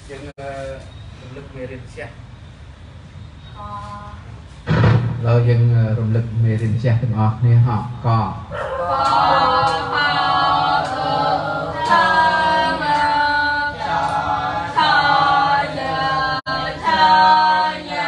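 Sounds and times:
voices chanting in unison: 0:08.5 - 0:18.0.

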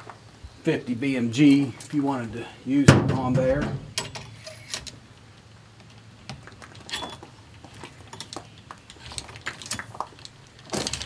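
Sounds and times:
metal gear clicking and scraping: 0:08.1 - 0:11.0.

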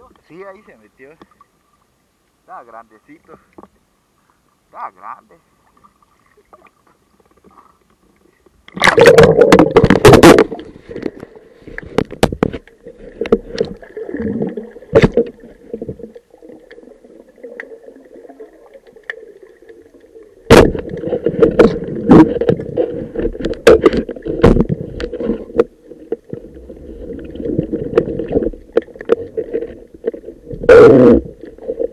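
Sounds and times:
loud splashing and bubbling: 0:08.8 - 0:11.0, 0:13.0 - 0:25.0
underwater knocks: 0:08.8 - 0:11.2.

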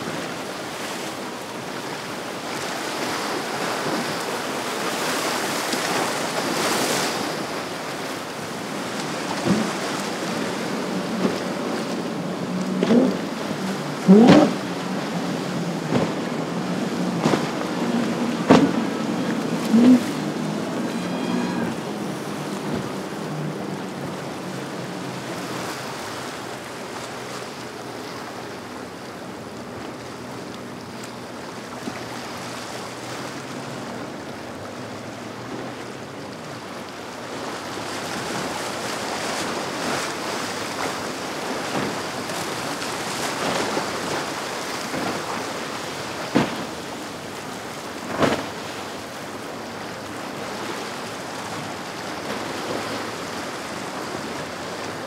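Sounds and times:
choppy water washing: 0:00.0 - 0:55.0
powerboat engine drone: 0:00.0 - 0:55.0
wind on microphone: 0:08.4 - 0:26.4.

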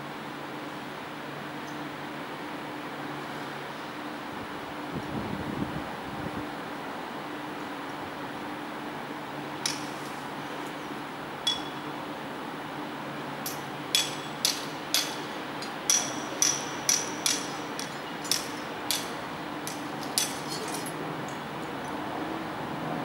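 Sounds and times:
hammer striking steel tube: 0:11.4 - 0:11.8, 0:13.5 - 0:20.8.

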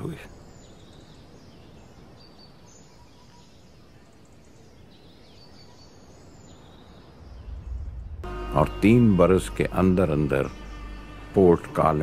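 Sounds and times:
deep low rumble: 0:07.2 - 0:10.0.

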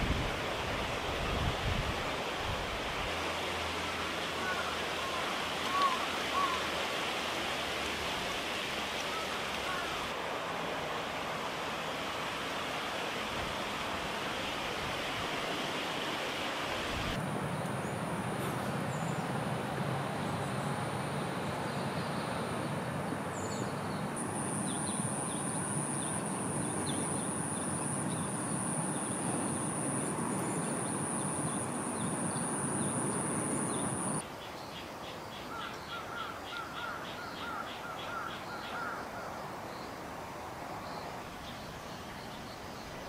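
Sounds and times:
rushing outdoor background: 0:00.0 - 0:34.3.

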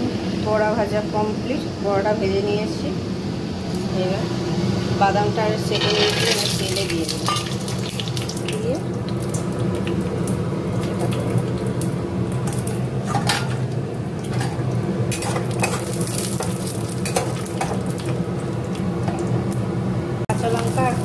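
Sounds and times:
low steady hum: 0:00.0 - 0:21.0
peanuts sizzling in hot oil: 0:05.7 - 0:12.8, 0:15.1 - 0:18.7, 0:20.3 - 0:21.0.

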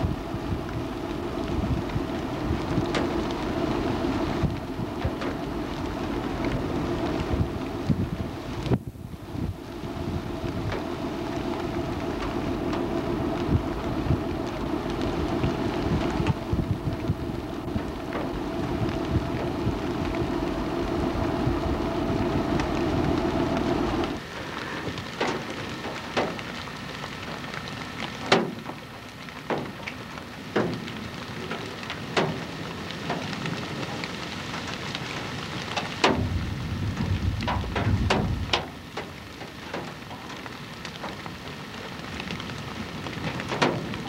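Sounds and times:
wind buffeting microphone: 0:00.0 - 0:26.4, 0:35.8 - 0:39.1
constant low hum: 0:00.0 - 0:44.0.

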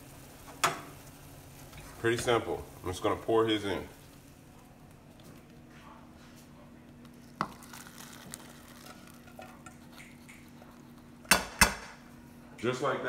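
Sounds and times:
noodles and broth splashing: 0:07.2 - 0:10.5.

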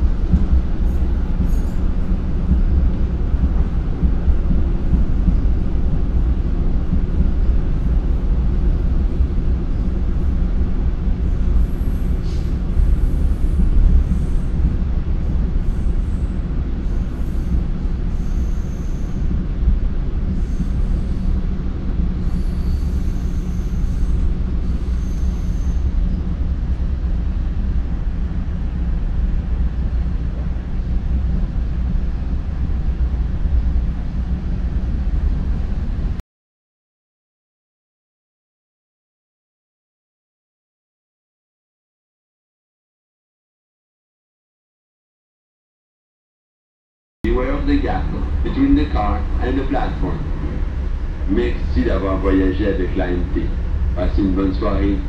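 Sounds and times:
train wheels rumbling on rail: 0:00.0 - 0:36.2, 0:47.3 - 0:55.0
high wheel squeals: 0:18.1 - 0:19.2, 0:22.3 - 0:25.9.

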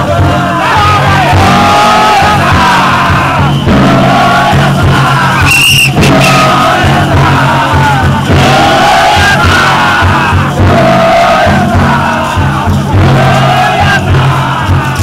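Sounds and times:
men chanting together: 0:00.0 - 0:15.0
shrill high tone: 0:05.4 - 0:06.7.

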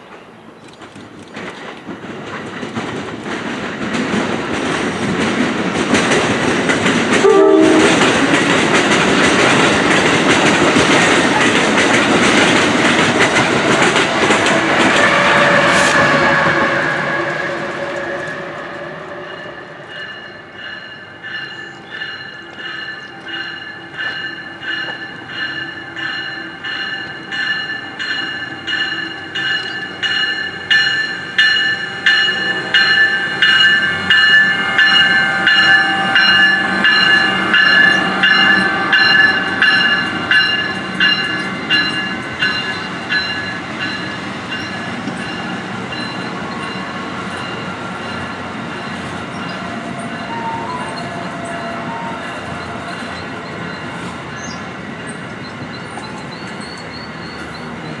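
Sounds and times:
locomotive bell ringing: 0:16.3 - 0:58.0.

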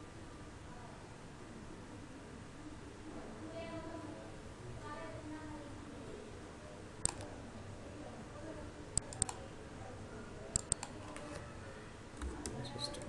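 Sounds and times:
mouse and keyboard clicks: 0:07.0 - 0:07.3, 0:09.0 - 0:09.4, 0:10.5 - 0:11.4.

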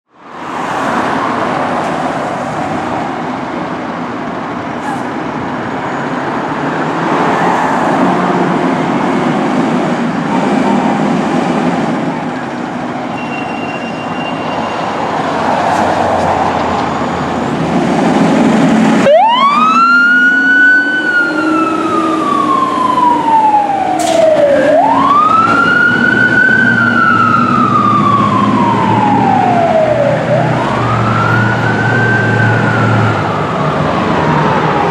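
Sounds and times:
truck engine rumble: 0:01.3 - 0:34.9
fire engine siren wailing: 0:13.6 - 0:34.9.

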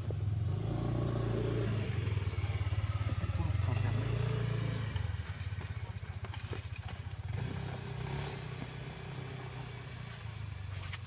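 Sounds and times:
engine idling: 0:01.6 - 0:10.9
faint clicks and rustles: 0:05.0 - 0:08.0.

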